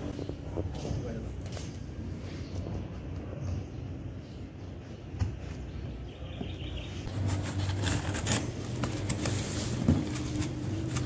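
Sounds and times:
cardboard scraping: 7.1s - 11.0s
tape crackling: 7.1s - 11.0s.

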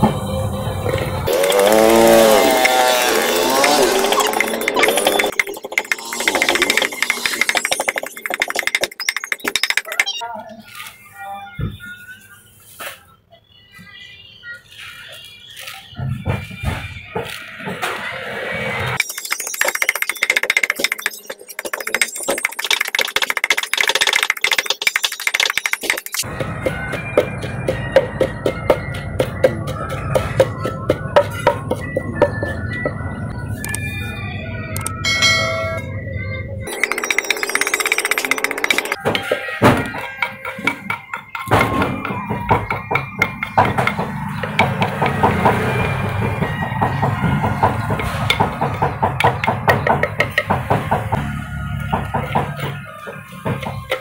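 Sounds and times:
wooden pestle pounding in mortar: 25.8s - 32.6s, 36.9s - 51.2s.

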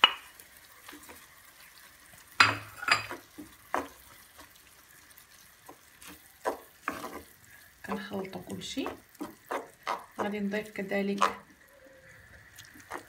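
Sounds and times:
faint sizzle: 0.0s - 13.0s
wooden spoon scraping a pot: 6.0s - 11.6s, 12.8s - 13.0s.

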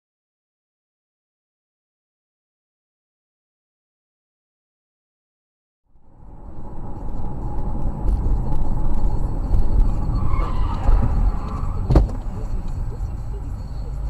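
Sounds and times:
car engine and tyre rumble: 5.9s - 14.0s.

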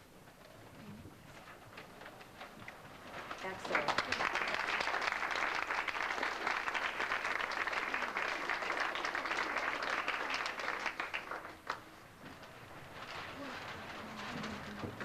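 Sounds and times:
audience applauding: 3.2s - 12.2s.

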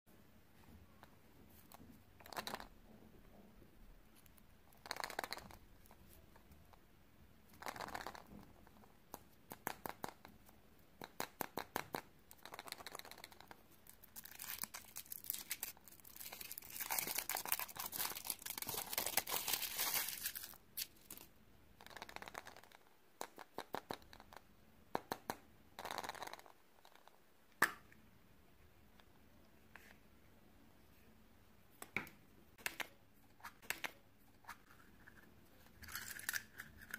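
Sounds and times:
foil wrapper crinkling: 14.1s - 21.3s.

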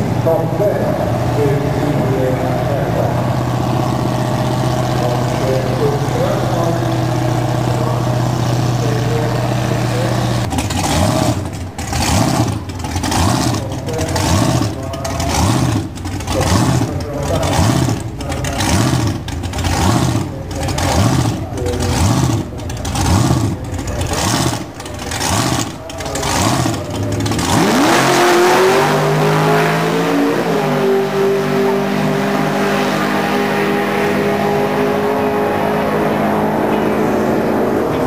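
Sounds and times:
drag car engine loping and launching: 0.0s - 38.0s.

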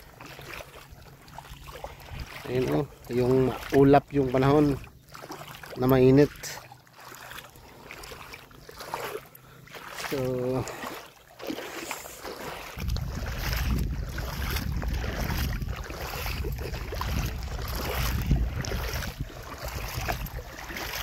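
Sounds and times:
wind buffeting microphone: 1.6s - 4.8s, 12.5s - 21.0s.

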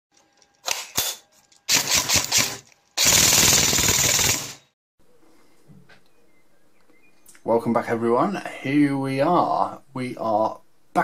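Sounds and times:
automatic gunfire: 1.7s - 4.6s.

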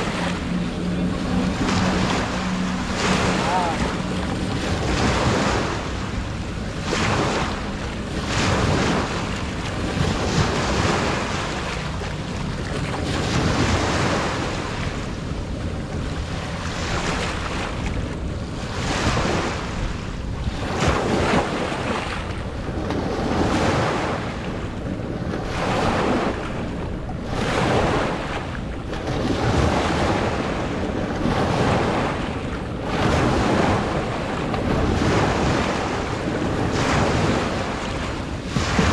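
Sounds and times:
sea waves washing in: 0.0s - 38.9s
wind buffeting microphone: 0.0s - 38.9s.

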